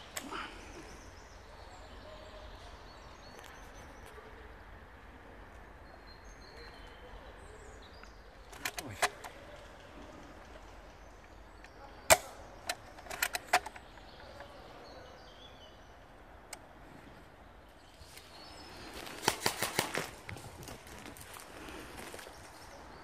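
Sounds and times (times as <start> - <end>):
airsoft guns firing: 19.2 - 20.1.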